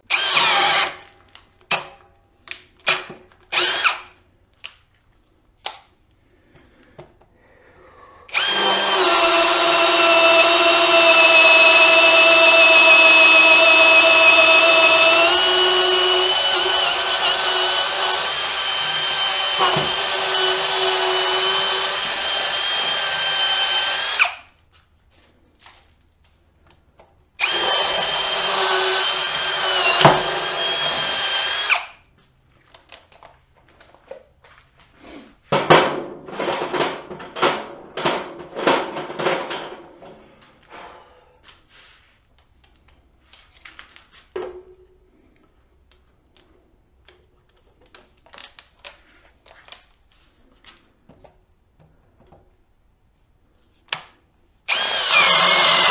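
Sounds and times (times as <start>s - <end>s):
drill boring into wood: 0.1s - 1.0s, 3.5s - 4.1s, 8.3s - 24.5s, 27.4s - 32.0s, 54.7s - 55.9s.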